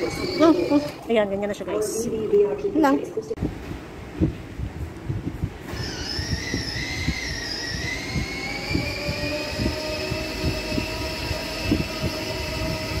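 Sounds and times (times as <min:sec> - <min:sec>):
electric toy motor whining: 0:00.0 - 0:01.0, 0:05.7 - 0:13.0.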